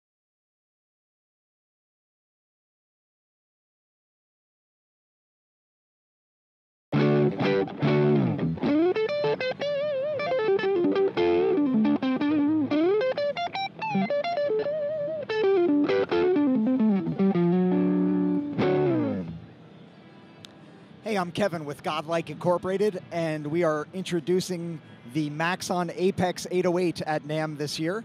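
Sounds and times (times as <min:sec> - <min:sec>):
distorted electric guitar: 0:07.0 - 0:19.5.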